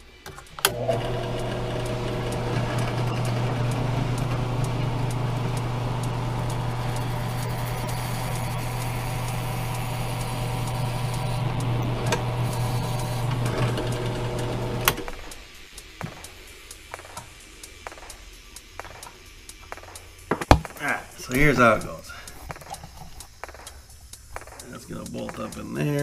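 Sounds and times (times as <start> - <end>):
drill press boring into plastic: 0.2 - 15.1.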